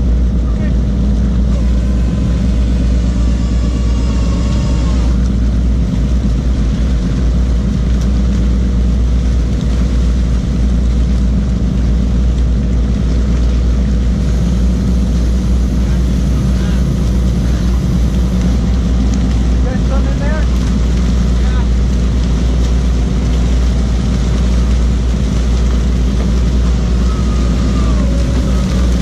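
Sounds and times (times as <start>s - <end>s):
boat engine droning: 0.0s - 29.0s
faint high whine: 1.4s - 5.8s
water hiss: 1.4s - 9.1s, 10.0s - 29.0s.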